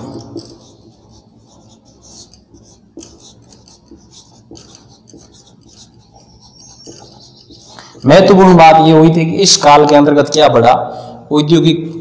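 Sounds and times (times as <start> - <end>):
marker pen scratching on whiteboard: 0.0 - 8.8.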